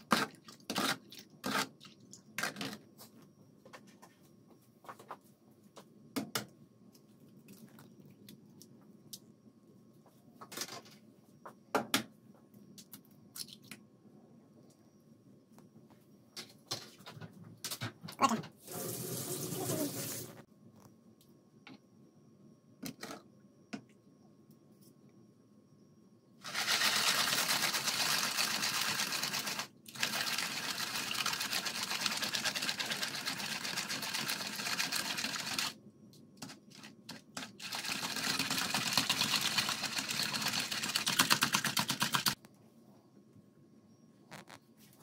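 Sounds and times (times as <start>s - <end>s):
whisk rattling in plastic bowl: 26.4s - 35.7s, 36.4s - 42.4s.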